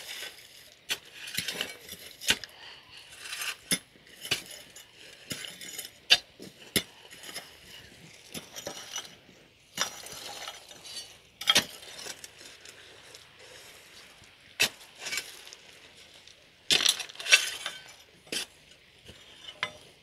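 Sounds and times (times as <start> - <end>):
scraping on gravel: 0.0 - 20.0.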